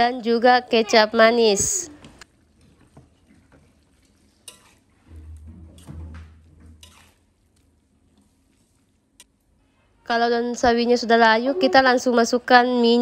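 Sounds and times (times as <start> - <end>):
metal spatula stirring greens in wok: 4.2 - 4.9, 6.6 - 7.3.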